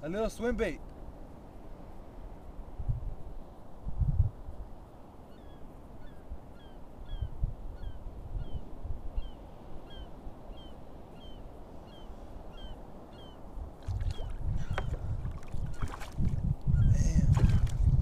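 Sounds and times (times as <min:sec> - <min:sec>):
wind: 0:00.0 - 0:18.0
bird calling: 0:05.3 - 0:13.5, 0:14.1 - 0:15.1, 0:15.7 - 0:16.1
water noise: 0:07.4 - 0:18.0.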